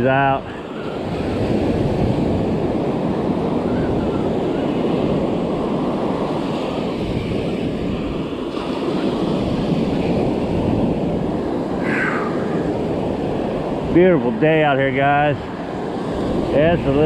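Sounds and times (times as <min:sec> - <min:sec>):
ocean surf breaking: 0:00.0 - 0:17.0
wind on microphone: 0:00.0 - 0:17.0.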